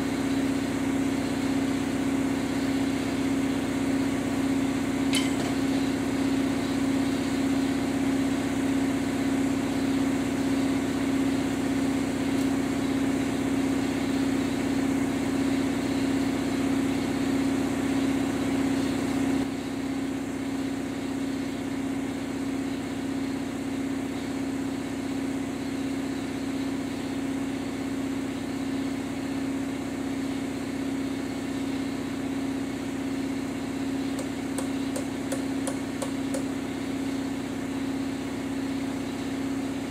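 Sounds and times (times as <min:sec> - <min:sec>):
drill press motor humming: 0:33.4 - 0:39.9.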